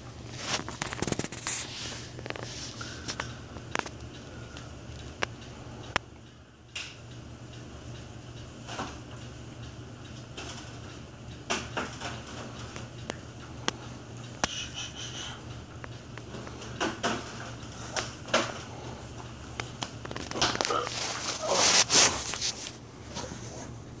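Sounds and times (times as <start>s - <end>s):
phone rubbing and scraping: 20.6s - 23.5s.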